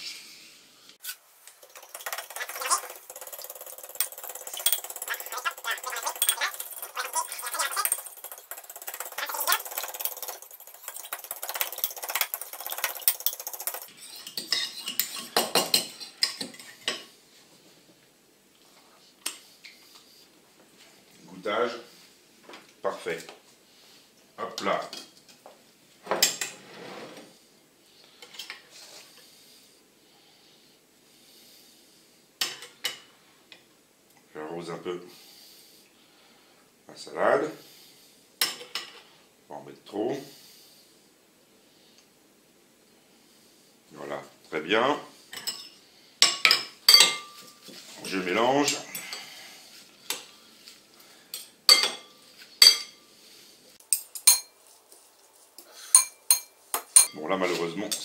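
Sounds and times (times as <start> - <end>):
cutlery clinking against a bowl: 1.6 - 17.1, 45.3 - 47.7, 51.3 - 53.0, 53.9 - 54.6, 55.8 - 57.2.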